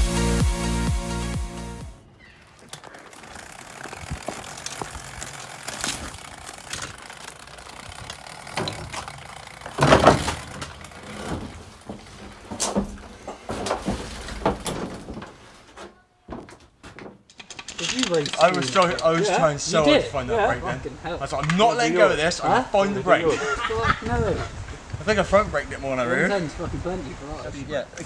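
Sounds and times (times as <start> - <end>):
knocks and rattles of gear handled: 2.2 - 19.1.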